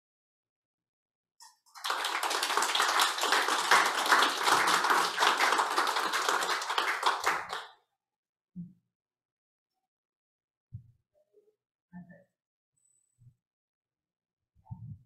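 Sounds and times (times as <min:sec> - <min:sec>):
audience applause: 0:01.8 - 0:07.7.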